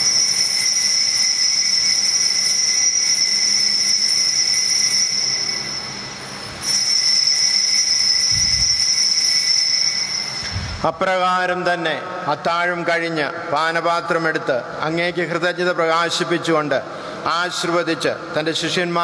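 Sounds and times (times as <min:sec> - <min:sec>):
high bell ringing: 0:00.0 - 0:10.9.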